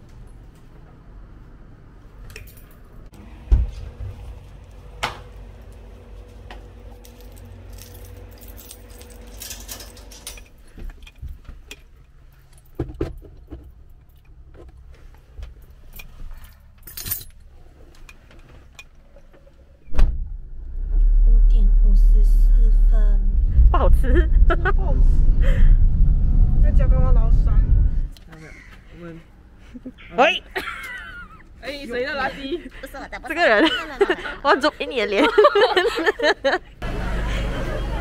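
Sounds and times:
keys jangling: 7.0 - 12.8, 15.6 - 17.5.

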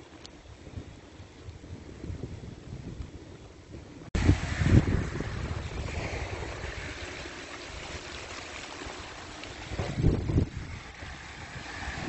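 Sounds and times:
light rain hissing: 0.0 - 12.0
wind buffeting microphone: 0.0 - 12.0
low rumble: 4.1 - 8.2.

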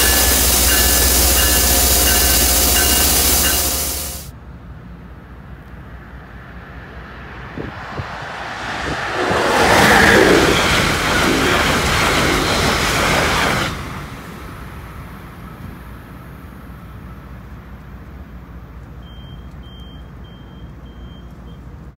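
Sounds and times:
faint high-pitched beeps: 0.0 - 4.3, 19.0 - 21.8
train rushing past on rails: 0.0 - 18.7
low rumble: 7.0 - 15.1.

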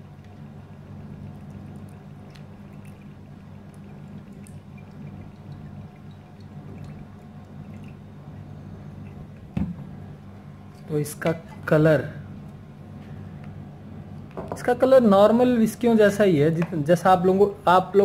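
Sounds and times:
steady low hum: 0.0 - 18.0
liquid pouring into a glass: 0.4 - 9.6.

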